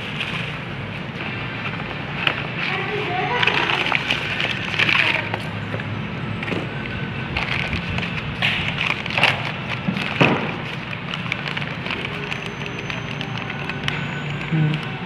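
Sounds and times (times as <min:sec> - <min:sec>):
paper crinkling and rustling: 0:00.0 - 0:15.0.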